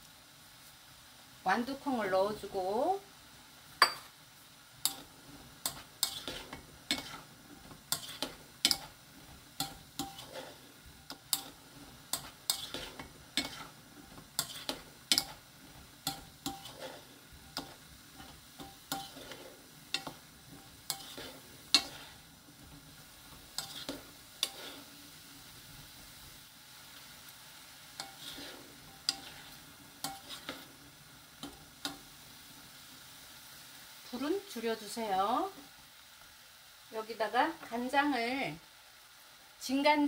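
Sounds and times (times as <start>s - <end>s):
faint sizzle: 0.0s - 40.0s.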